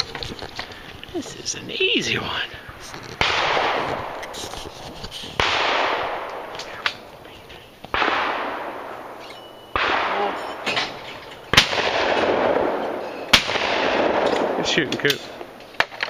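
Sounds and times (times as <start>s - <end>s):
shotgun blasts with echo: 3.2s - 4.4s, 5.4s - 7.1s, 7.9s - 16.0s.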